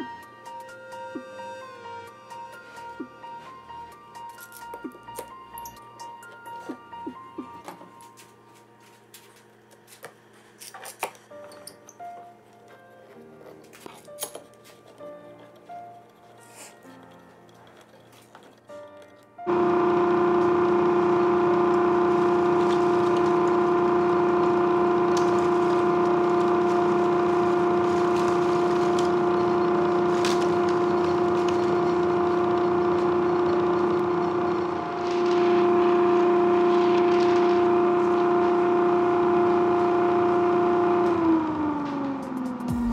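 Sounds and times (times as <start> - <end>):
dust collector blower whining: 19.5 - 42.9.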